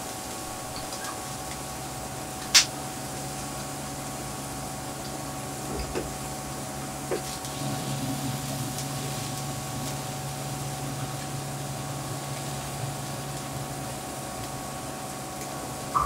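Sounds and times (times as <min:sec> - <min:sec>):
grill fan humming and whining: 0:00.0 - 0:16.0
food sizzling on grill plate: 0:06.2 - 0:15.0.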